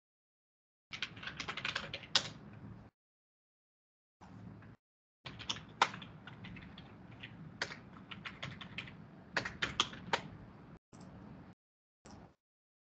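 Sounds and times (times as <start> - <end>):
computer keyboard typing: 0.9 - 2.4, 5.3 - 10.4.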